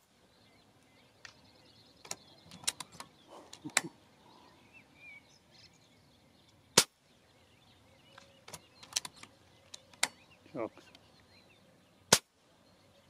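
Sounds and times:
air rifle shot: 12.1s - 12.3s.

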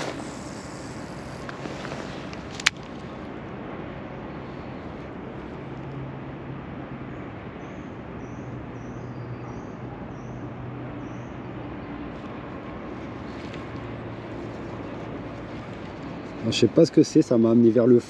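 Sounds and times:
low outdoor rumble and hum: 0.0s - 6.8s, 12.0s - 18.0s.

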